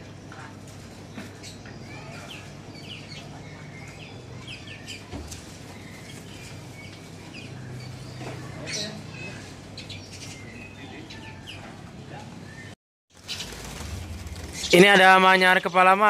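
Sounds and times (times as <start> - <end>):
songbirds chirping: 0.0 - 16.0
steady low hum: 13.2 - 15.5.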